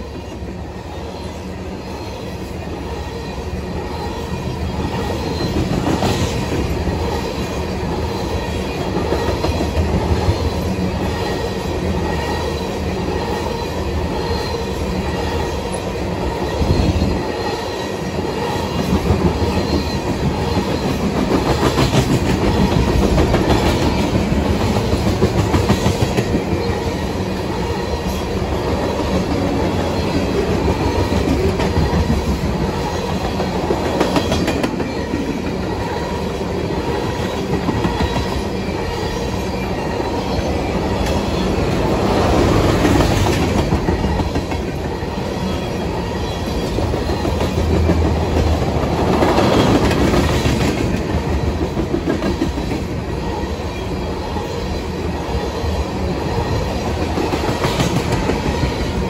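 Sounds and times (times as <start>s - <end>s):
train wheels clattering on rail joints: 18.6s - 36.0s, 36.7s - 53.0s, 56.4s - 59.0s.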